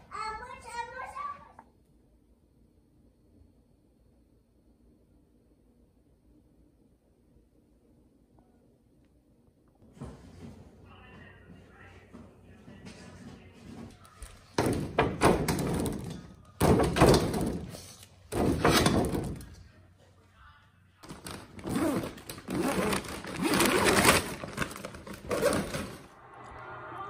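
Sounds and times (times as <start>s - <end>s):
plastic packaging crinkling: 21.0s - 26.0s.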